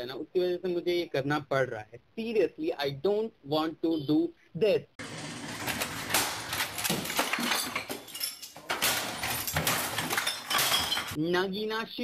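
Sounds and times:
bangs knocks and clatters: 0:05.0 - 0:11.2
clinking: 0:05.6 - 0:11.2.

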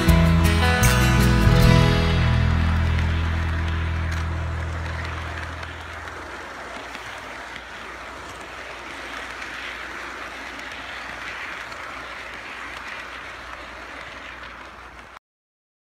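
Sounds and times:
model train wheels rolling on rails: 0:03.5 - 0:15.2.

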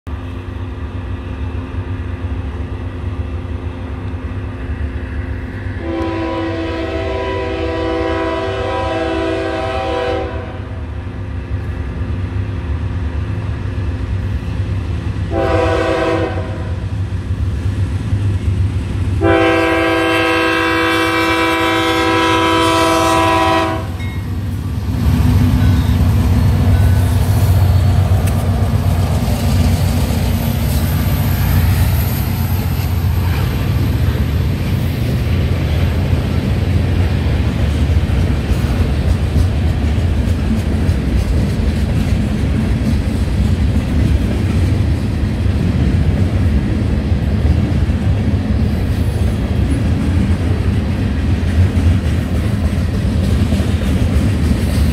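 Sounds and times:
locomotive air horn: 0:05.8 - 0:10.8, 0:15.3 - 0:16.8, 0:19.2 - 0:24.0.

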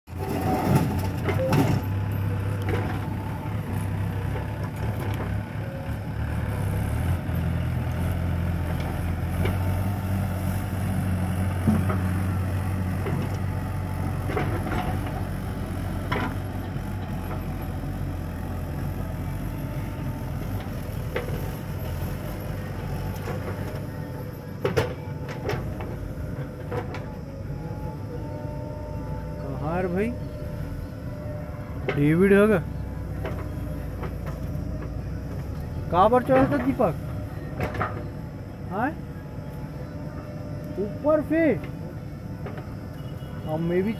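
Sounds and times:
diesel engines running: 0:00.0 - 0:43.9
earth dumping into steel trolley: 0:00.1 - 0:02.1.

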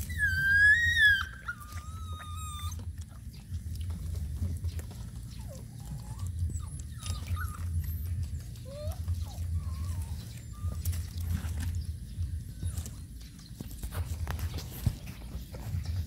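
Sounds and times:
puppies whining: 0:00.0 - 0:16.0
faint whimpers and small clicks: 0:04.7 - 0:11.8.

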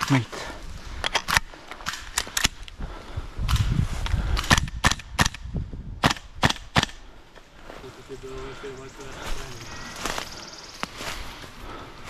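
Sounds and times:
airsoft gun shots: 0:06.0 - 0:07.0.

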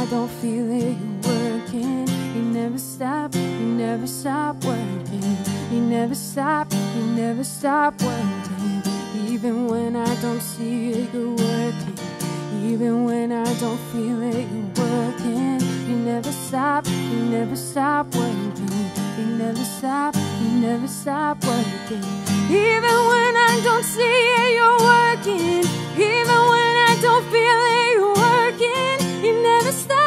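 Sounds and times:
strummed acoustic guitar: 0:00.0 - 0:30.0
woman singing: 0:00.0 - 0:30.0.

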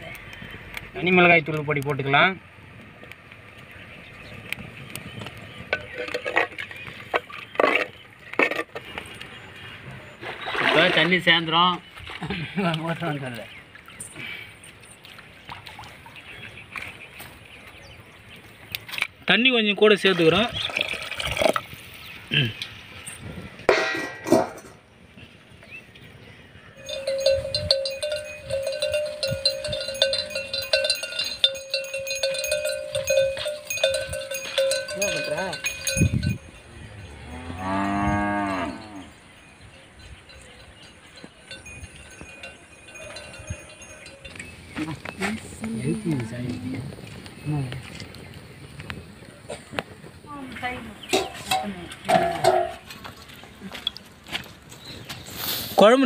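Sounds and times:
goat bells clanking: 0:05.6 - 0:07.2, 0:26.8 - 0:37.0, 0:38.8 - 0:47.7.

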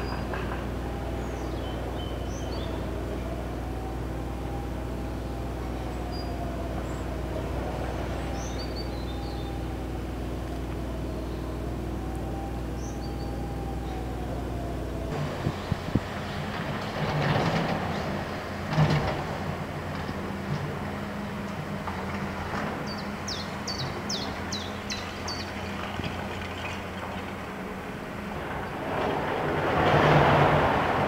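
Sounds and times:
rising and falling siren: 0:00.0 - 0:17.1
low machinery drone: 0:00.0 - 0:31.0
faint bird chirps: 0:08.3 - 0:09.6.

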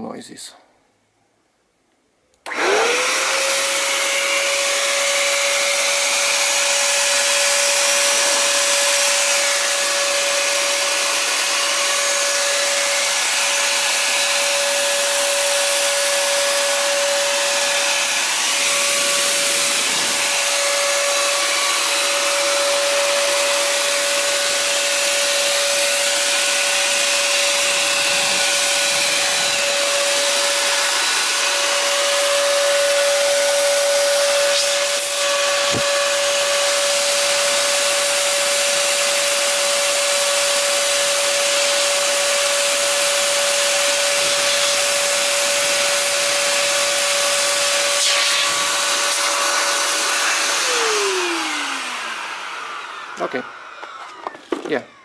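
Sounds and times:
handheld vacuum blower whine: 0:02.4 - 0:55.0
rush of air: 0:18.2 - 0:21.3.

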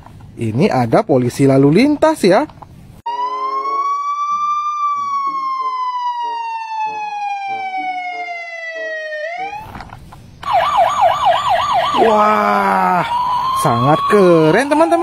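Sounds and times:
police siren wailing: 0:03.1 - 0:09.7, 0:10.4 - 0:15.0.

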